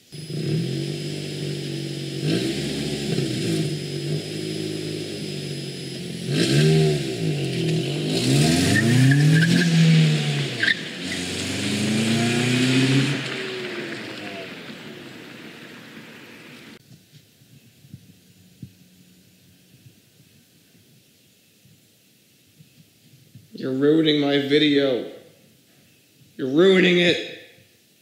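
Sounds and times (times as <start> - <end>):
car engine revving: 0.0 - 16.8.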